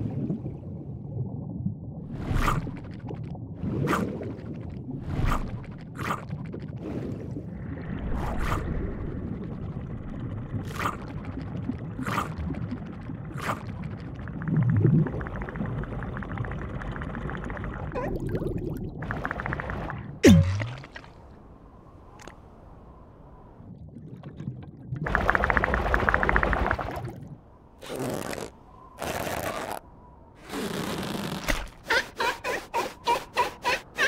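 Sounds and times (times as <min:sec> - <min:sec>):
low bubbling: 0:00.0 - 0:22.3, 0:23.4 - 0:29.0
cartoon gulps: 0:17.9 - 0:18.9, 0:20.2 - 0:21.1.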